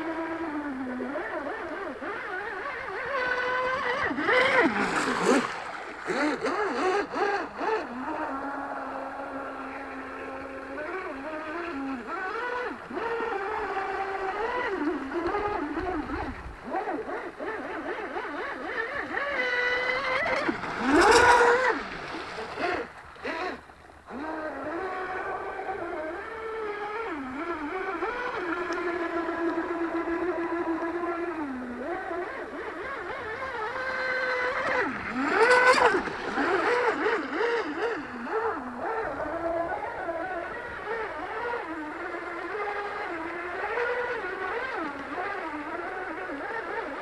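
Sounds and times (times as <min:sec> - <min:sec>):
electric motor whining: 0:00.0 - 0:47.0.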